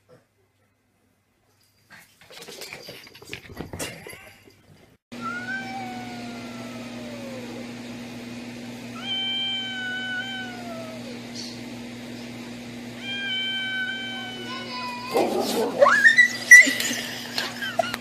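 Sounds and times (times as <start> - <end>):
cat yowling: 5.2 - 7.7, 9.0 - 11.5, 13.0 - 16.9.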